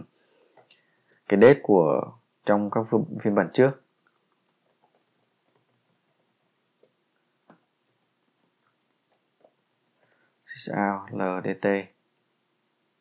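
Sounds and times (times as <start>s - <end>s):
computer keyboard keystrokes: 4.0s - 5.8s, 6.7s - 9.6s.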